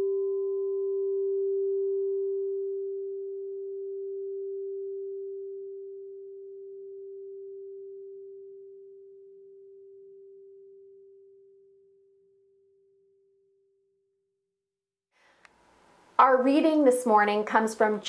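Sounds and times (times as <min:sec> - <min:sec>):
meditation bell ringing: 0:00.0 - 0:11.6.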